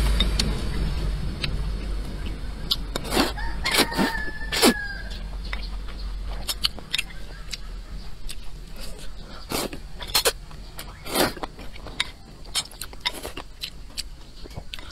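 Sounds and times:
mouth clicks: 1.4 - 14.9
noodles being slurped: 2.7 - 4.8, 8.3 - 13.6
rooster crowing: 3.2 - 5.4.

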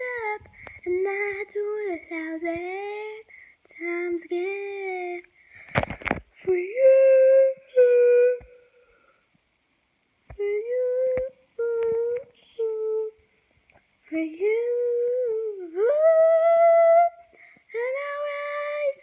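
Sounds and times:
girl humming: 6.5 - 8.9.

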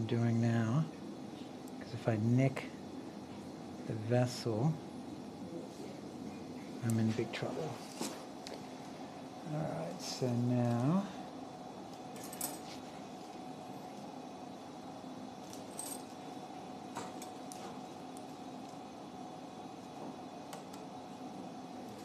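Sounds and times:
room hum: 0.0 - 22.0
metal instruments clinking: 12.1 - 12.8.

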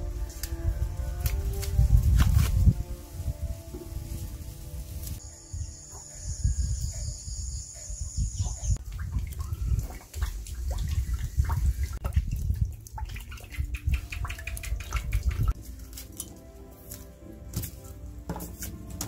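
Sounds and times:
water drips and splashes: 8.4 - 16.4
water pouring onto stones: 10.3 - 15.6.

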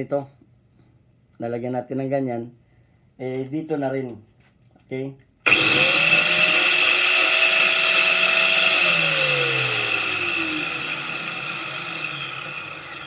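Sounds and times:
angle grinder whining: 5.5 - 13.0.

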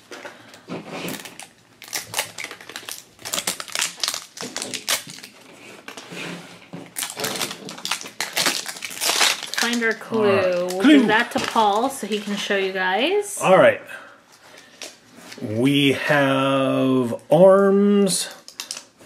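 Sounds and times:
plastic wrapping crinkling: 0.0 - 12.8, 18.3 - 19.0.

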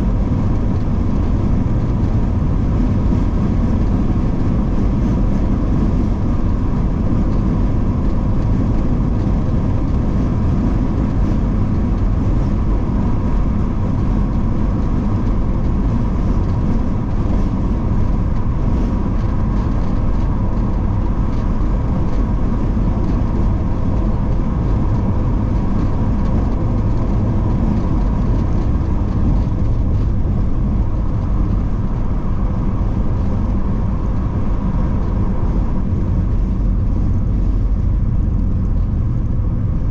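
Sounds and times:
engine and tyre rumble: 0.0 - 39.9.

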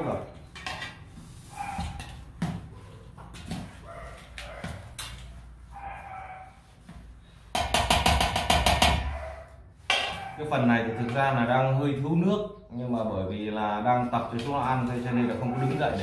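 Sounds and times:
puppies whining: 9.0 - 11.3.

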